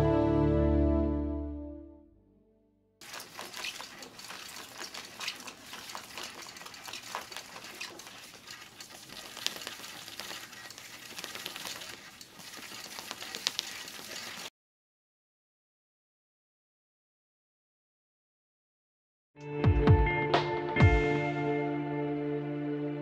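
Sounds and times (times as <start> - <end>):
paper labels rustling on rewinder: 3.0 - 14.5.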